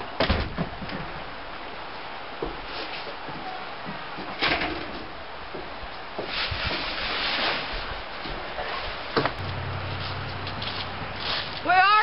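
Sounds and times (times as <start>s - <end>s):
footsteps on wooden boards: 2.4s - 4.4s, 5.5s - 6.4s.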